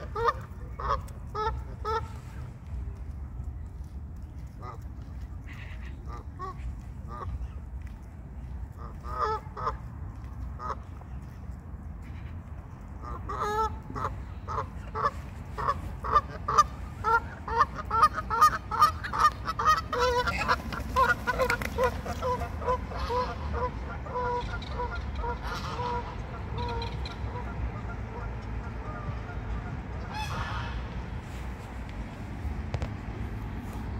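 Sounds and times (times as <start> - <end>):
waterfowl calling: 13.0 - 30.9.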